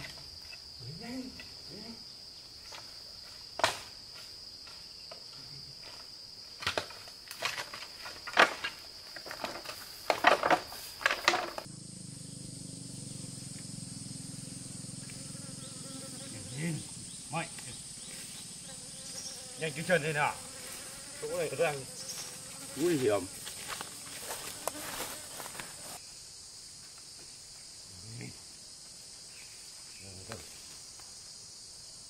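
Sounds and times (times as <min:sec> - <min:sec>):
insects buzzing: 0:00.0 - 0:32.0
low hum: 0:11.7 - 0:16.2
rustling through undergrowth: 0:20.4 - 0:26.0.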